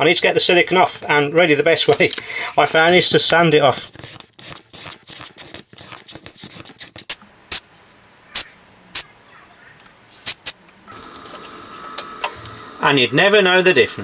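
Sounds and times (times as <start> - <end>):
sandpaper rubbing on resin: 2.5 - 3.1, 3.7 - 7.2.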